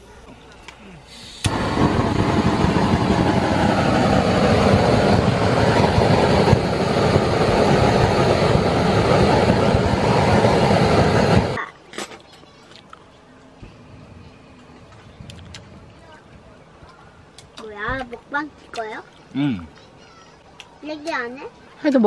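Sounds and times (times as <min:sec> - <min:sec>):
butane torch hissing: 0:01.1 - 0:11.6.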